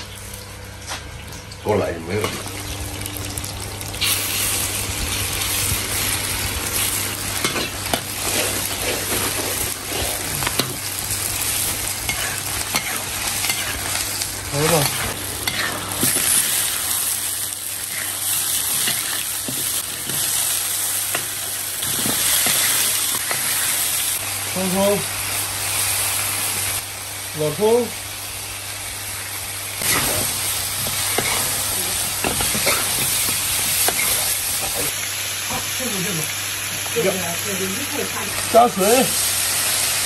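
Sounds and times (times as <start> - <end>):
oil sizzling in a wok: 0.0 - 40.0
metal spatula scraping wok: 12.0 - 13.9, 14.6 - 16.4, 29.8 - 34.9.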